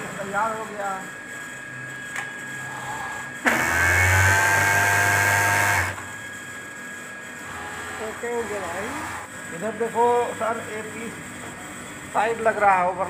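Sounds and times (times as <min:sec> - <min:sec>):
overlock sewing machine running: 0:03.4 - 0:06.0.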